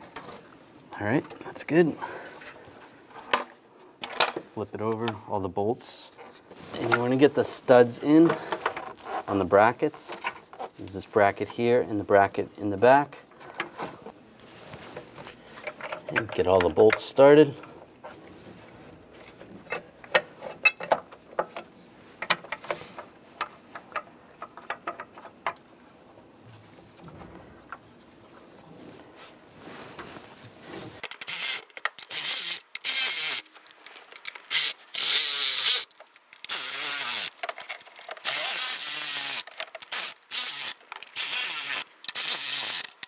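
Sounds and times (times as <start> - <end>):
bolts and parts clicking: 2.4 - 5.2, 6.2 - 11.6, 15.2 - 18.2, 19.2 - 25.7, 31.0 - 43.0
cordless electric ratchet whirring: 31.3 - 33.4, 34.5 - 37.3, 38.2 - 43.0.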